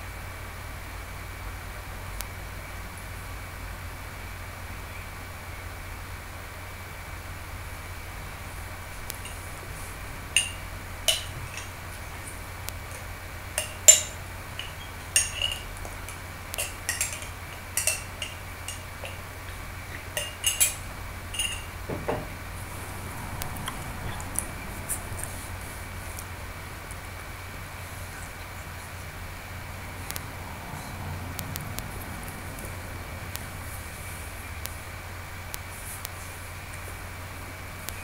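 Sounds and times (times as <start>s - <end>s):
low steady hum: 0.0s - 38.0s
sharp clinks and clicks: 10.3s - 11.9s, 12.8s - 19.3s, 20.0s - 21.8s.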